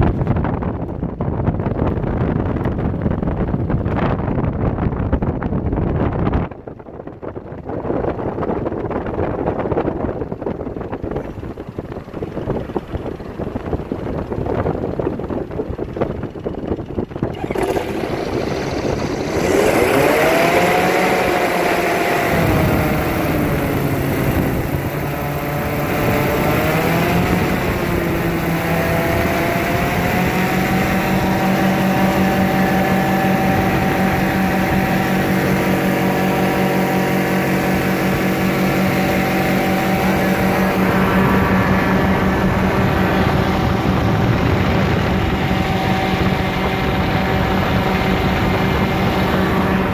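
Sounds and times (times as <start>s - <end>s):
engine and propeller: 0.0s - 49.9s
rough wind noise: 0.0s - 49.9s.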